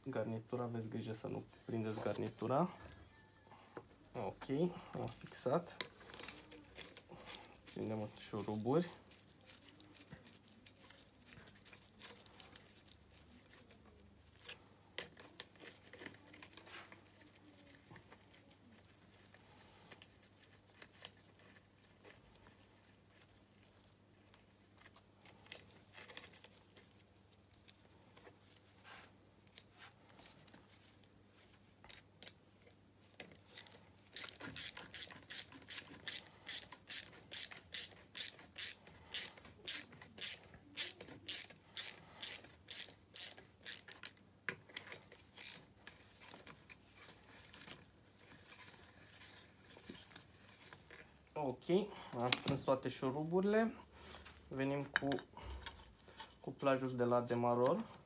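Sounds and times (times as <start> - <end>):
ratchet wrench clicking: 33.6 - 44.1, 45.4 - 45.6.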